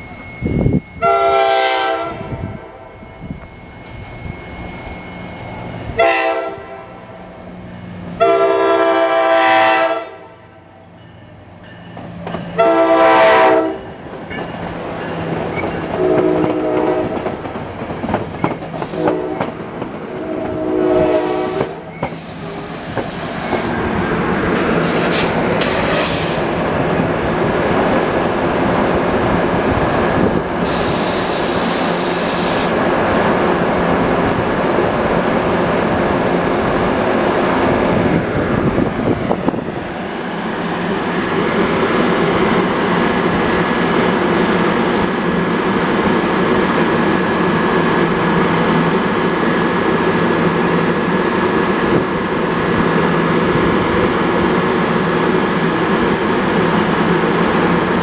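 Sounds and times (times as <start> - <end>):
locomotive horn blasts: 1.0 - 2.8, 5.9 - 7.0, 8.2 - 10.4, 12.6 - 13.8, 16.0 - 17.2, 18.9 - 19.5, 20.1 - 21.8
train cars rumbling and clattering: 10.8 - 58.0
high hissing bursts: 21.2 - 23.7, 30.7 - 32.8.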